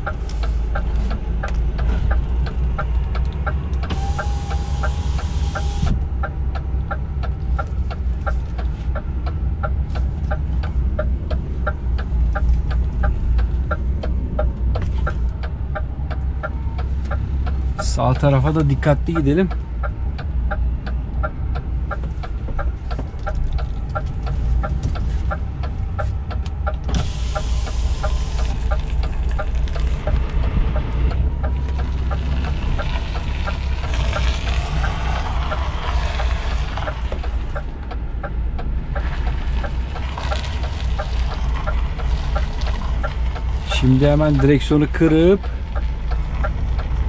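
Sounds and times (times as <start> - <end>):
diesel engine running: 0.0 - 47.0
fast regular ticking: 25.4 - 47.0.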